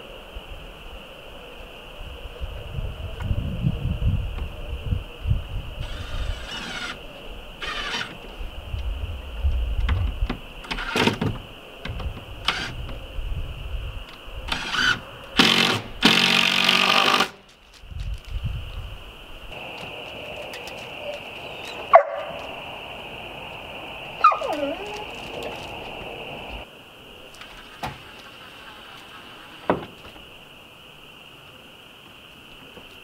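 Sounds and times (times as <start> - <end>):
insect drone: 0.0 - 33.0
power drill whirring: 5.8 - 7.0, 7.6 - 8.2, 14.5 - 17.4.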